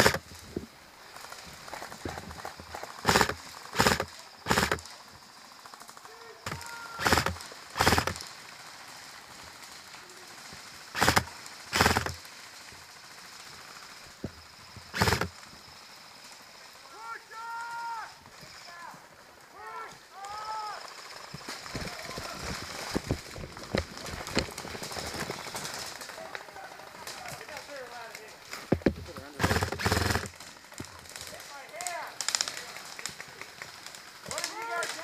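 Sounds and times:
airsoft rifles firing bursts: 0:00.0 - 0:00.2, 0:03.0 - 0:04.9, 0:06.5 - 0:08.3, 0:10.9 - 0:12.3, 0:14.9 - 0:15.3, 0:28.8 - 0:30.4.

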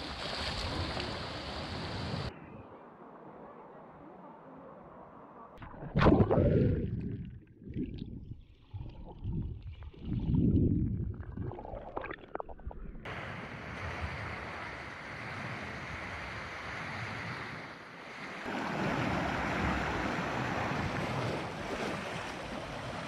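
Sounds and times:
sea water wash: 0:00.0 - 0:02.3, 0:05.6 - 0:23.0
underwater bubbling: 0:05.6 - 0:13.1
waves splashing over rocks: 0:13.1 - 0:23.0.

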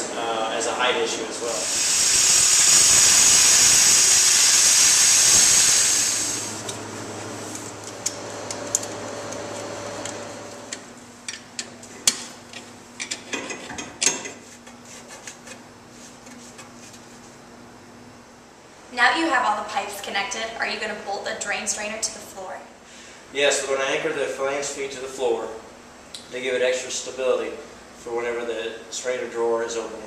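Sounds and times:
rotary tool hissing: 0:01.5 - 0:06.7.

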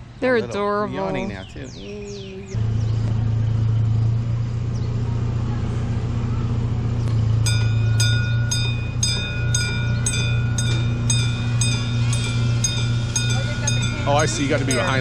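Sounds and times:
low engine hum: 0:00.0 - 0:15.0
railroad crossing bell ringing: 0:07.3 - 0:15.0.

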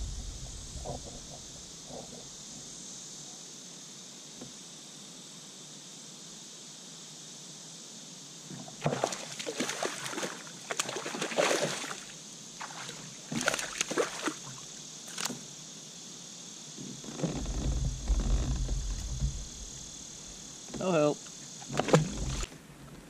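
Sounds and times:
low knocking: 0:00.0 - 0:02.3, 0:17.7 - 0:19.9
insect buzz: 0:00.0 - 0:23.0
fish splashing at the surface: 0:08.8 - 0:14.6.

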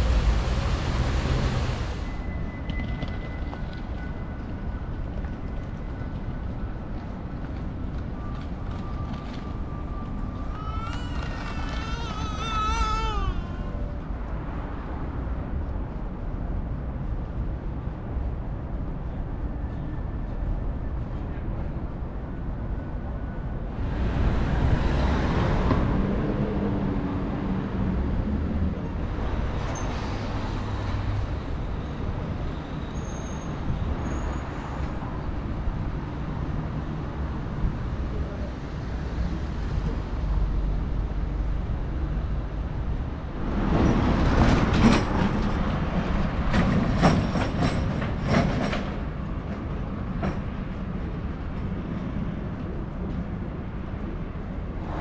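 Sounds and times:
passing traffic: 0:00.0 - 0:55.0
vehicle rattling clacks: 0:43.6 - 0:50.8.

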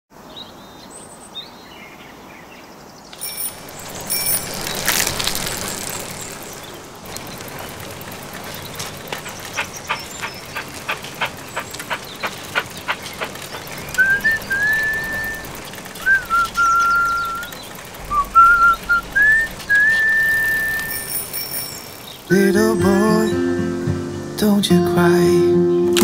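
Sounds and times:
bicycle bell ringing: 0:03.2 - 0:06.6, 0:20.3 - 0:23.5
rapid regular ticks: 0:03.2 - 0:22.5
faint bird chirps: 0:08.4 - 0:22.3.

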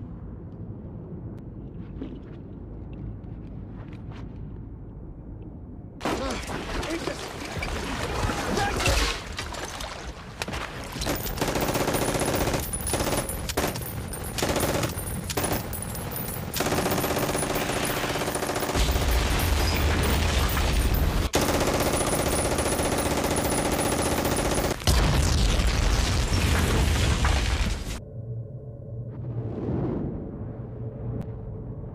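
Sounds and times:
deep rumble: 0:00.0 - 0:06.0, 0:24.9 - 0:31.9
machine-gun fire: 0:11.1 - 0:25.3.

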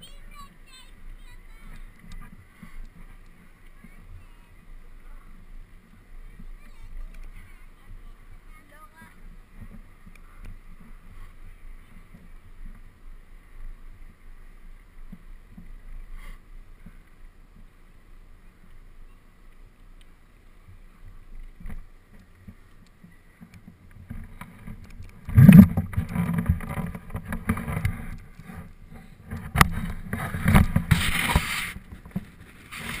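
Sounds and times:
tyre and wind rumble: 0:20.6 - 0:33.0.

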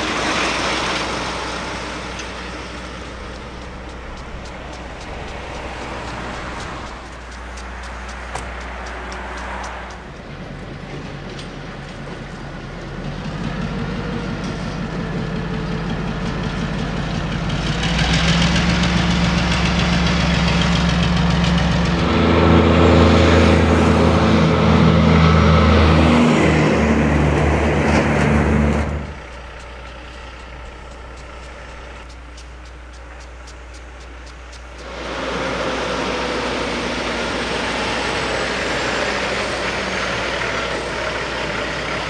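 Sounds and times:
deep steady engine sound: 0:00.0 - 0:42.0
diesel locomotive engine: 0:00.0 - 0:42.0.

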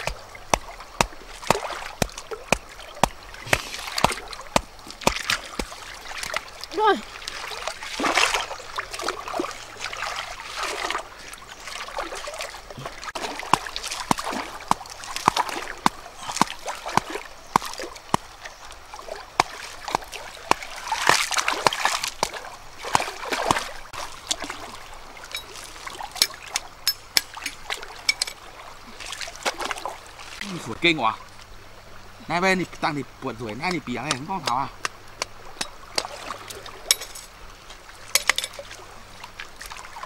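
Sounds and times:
sharp drips and clicks: 0:00.0 - 0:09.5, 0:25.2 - 0:28.4, 0:32.7 - 0:37.3, 0:38.1 - 0:39.8
water splashing and trickling: 0:00.0 - 0:40.0.

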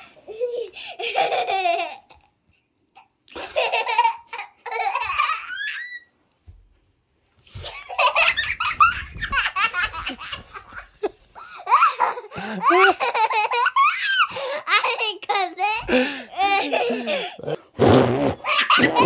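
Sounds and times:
child laughing: 0:00.3 - 0:02.3, 0:03.4 - 0:06.1, 0:07.6 - 0:17.6, 0:18.4 - 0:19.0
child squealing: 0:05.4 - 0:06.1.

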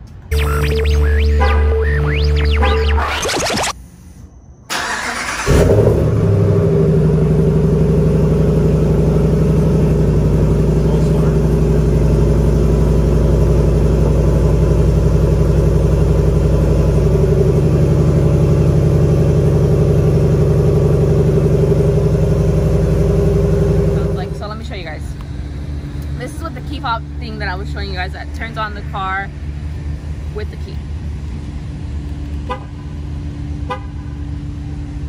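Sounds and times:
engine starting and idling: 0:04.7 - 0:24.5.

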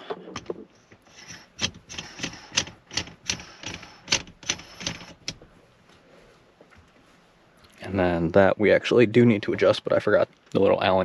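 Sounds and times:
metal shift knob clicking: 0:00.0 - 0:05.4.

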